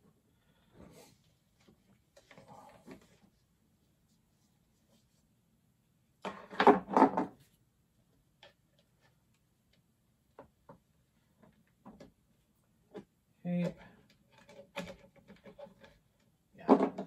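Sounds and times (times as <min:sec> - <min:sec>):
plastic toy parts knocking and clicking: 0:16.6 - 0:17.0.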